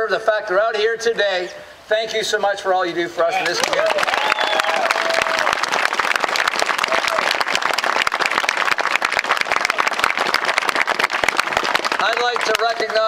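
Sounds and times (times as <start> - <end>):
crowd applauding: 3.4 - 13.0.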